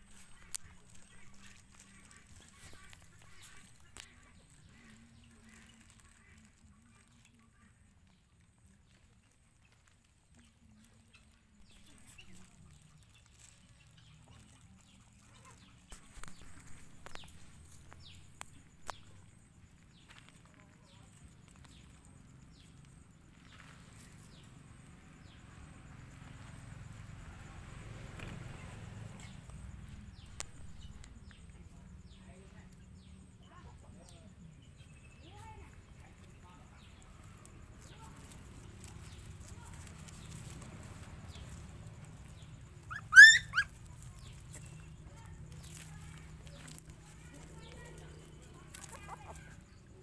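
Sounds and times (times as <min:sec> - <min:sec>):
paws clicking on dry leaves: 0:00.0 - 0:31.5, 0:34.7 - 0:50.0
puppies whimpering: 0:42.8 - 0:44.1.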